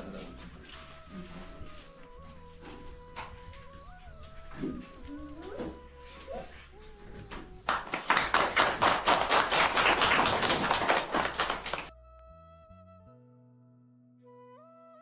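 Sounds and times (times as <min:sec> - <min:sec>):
soft background music: 0:00.0 - 0:08.8
people clapping: 0:07.4 - 0:11.9.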